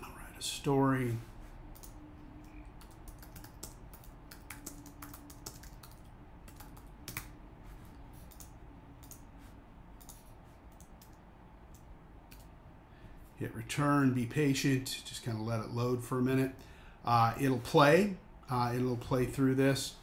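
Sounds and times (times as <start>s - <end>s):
computer keyboard typing: 1.7s - 7.4s, 8.2s - 9.3s, 10.0s - 12.5s.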